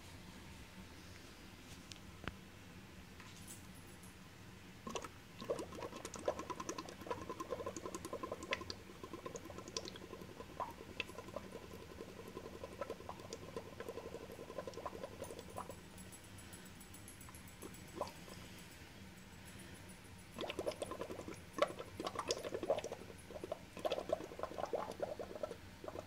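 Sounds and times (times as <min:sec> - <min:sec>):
bubbling through a straw in water: 0:04.9 - 0:15.8, 0:18.0 - 0:18.3, 0:20.4 - 0:26.0.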